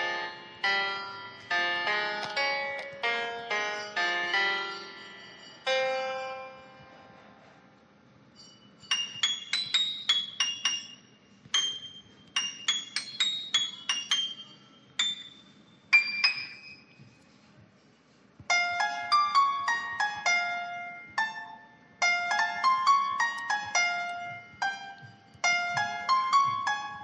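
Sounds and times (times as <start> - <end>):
bell-like chiming melody: 0.0 - 7.2, 8.3 - 17.0.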